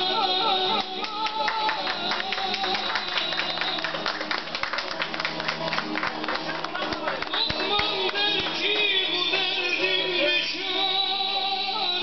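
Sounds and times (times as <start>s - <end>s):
men clapping: 0.4s - 9.2s.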